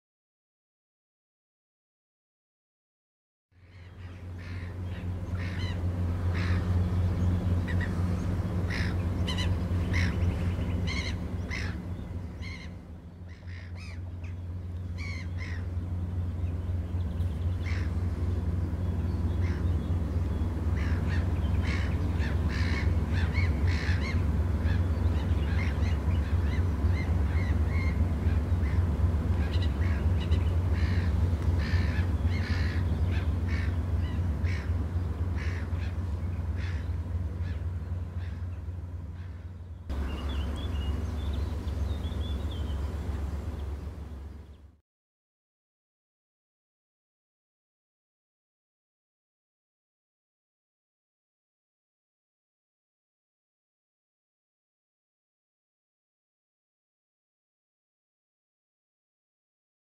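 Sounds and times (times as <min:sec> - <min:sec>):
low diesel engine drone: 0:03.5 - 0:44.8
crows cawing: 0:05.4 - 0:06.7, 0:08.7 - 0:10.2, 0:10.9 - 0:11.8, 0:17.6 - 0:17.9, 0:20.8 - 0:24.2, 0:30.7 - 0:33.8, 0:34.4 - 0:34.7, 0:35.3 - 0:38.4.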